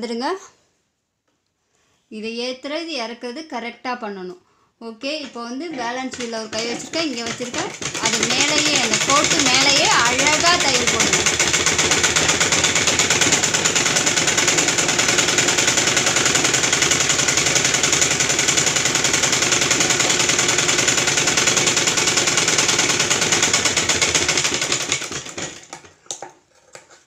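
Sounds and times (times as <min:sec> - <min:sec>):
sewing machine running: 0:06.0 - 0:25.9.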